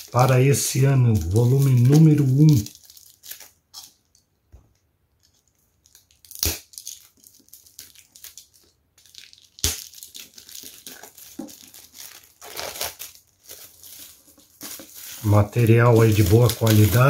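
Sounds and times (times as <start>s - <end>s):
plastic wrap crinkling and tearing: 0.0s - 4.1s, 5.2s - 17.0s
sharp plastic cracks: 5.9s - 7.2s.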